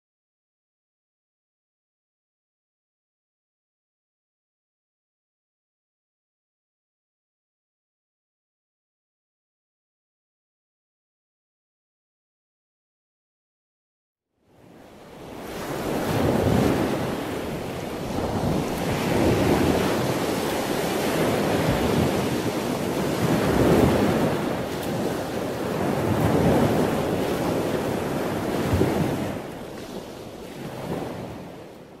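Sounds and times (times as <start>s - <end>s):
surf washing onto beach: 14.6s - 32.0s
wind buffeting microphone: 14.8s - 32.0s.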